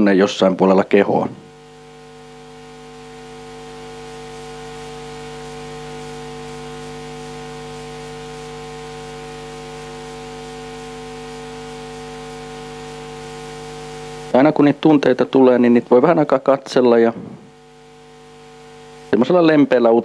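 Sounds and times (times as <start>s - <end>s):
electrical mains hum: 0.0s - 20.0s
faint microphone hiss: 14.0s - 20.0s.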